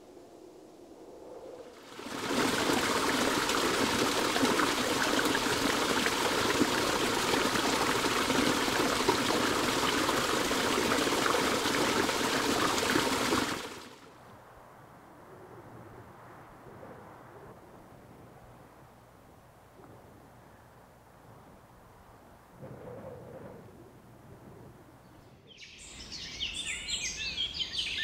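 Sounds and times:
rushing splashing water: 1.7s - 14.1s.

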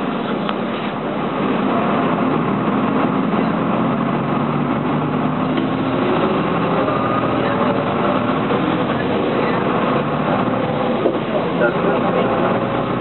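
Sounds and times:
bus diesel engine under load: 0.0s - 13.0s
road and cabin noise: 0.0s - 13.0s.

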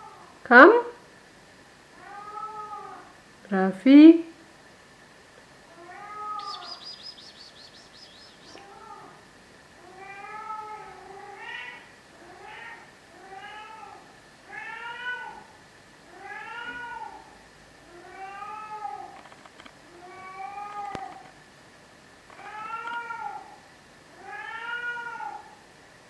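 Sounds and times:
cat yowling: 2.0s - 3.1s, 5.7s - 7.2s, 8.4s - 9.2s, 9.8s - 15.5s, 16.1s - 19.2s, 19.9s - 21.2s, 22.4s - 25.6s.

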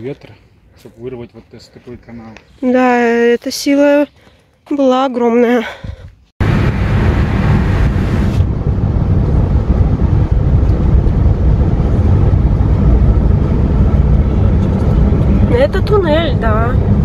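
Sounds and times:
motorcycles roaring: 6.4s - 17.0s.

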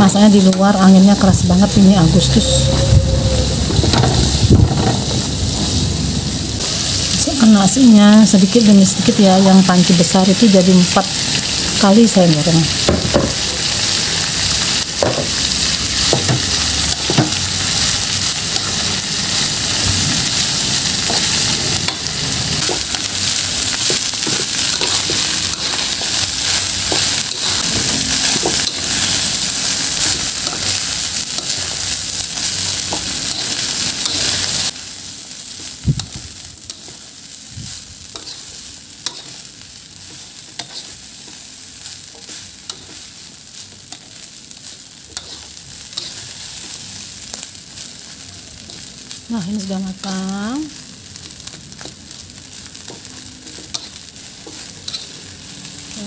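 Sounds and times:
rice sizzling in a wok: 0.0s - 56.0s
spatula scraping a pan: 38.1s - 39.5s, 40.1s - 41.4s, 45.1s - 46.8s, 52.9s - 55.3s.

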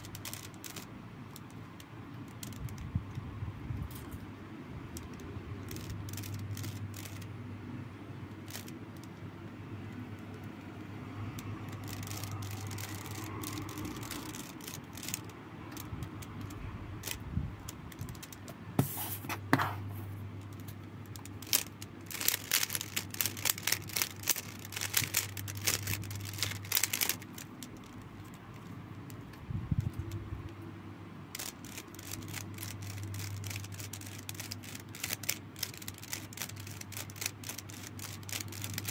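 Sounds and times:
puzzle cube layers clicking: 31.3s - 38.9s.

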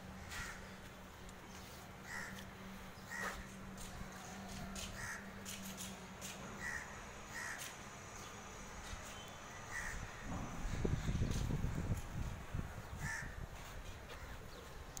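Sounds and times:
crows cawing: 0.2s - 0.8s, 2.0s - 5.6s, 6.5s - 7.8s, 9.6s - 10.3s, 12.9s - 13.5s
low rumbling noise: 9.6s - 13.6s.

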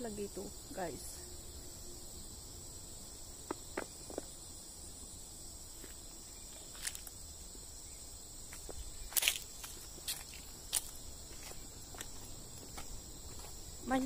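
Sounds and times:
insects buzzing: 0.0s - 14.0s
footsteps on a path: 3.4s - 4.4s, 5.7s - 7.2s, 8.4s - 14.0s.

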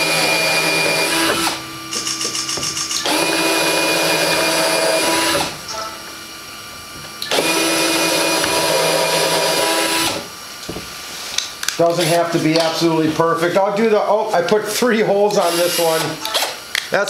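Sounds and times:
cordless drill whining: 0.0s - 5.8s, 7.2s - 10.3s, 15.4s - 16.6s.

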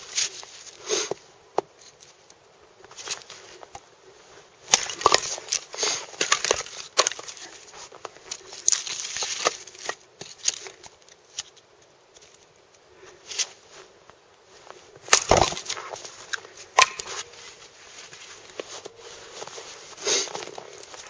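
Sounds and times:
split wood clattering: 4.7s - 7.7s, 15.1s - 17.3s
hatchet splitting wood: 15.1s - 15.8s.

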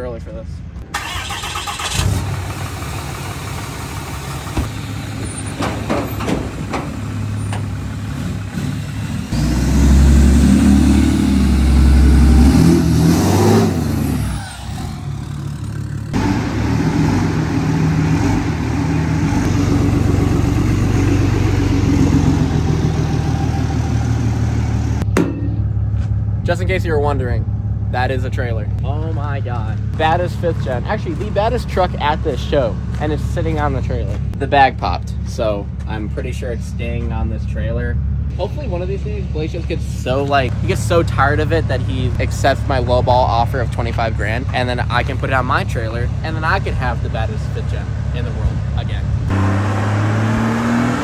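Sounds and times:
pickup truck engine revving: 1.0s - 25.1s, 48.9s - 51.0s.

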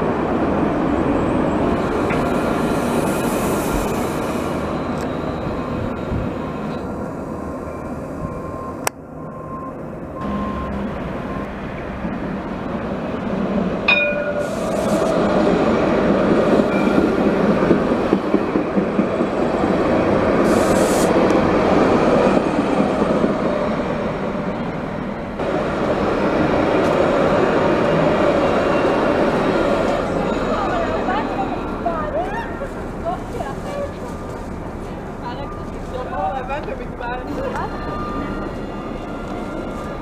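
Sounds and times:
tram rolling on rails: 0.0s - 40.0s
sharp metal clang: 13.9s - 14.5s.

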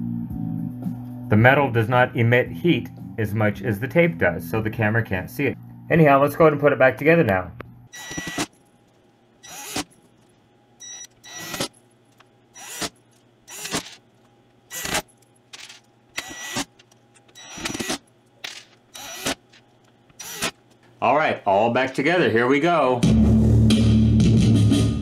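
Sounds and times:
electric screwdriver running: 8.0s - 8.5s, 9.4s - 9.9s, 11.2s - 11.7s, 12.6s - 14.0s, 14.7s - 20.6s.

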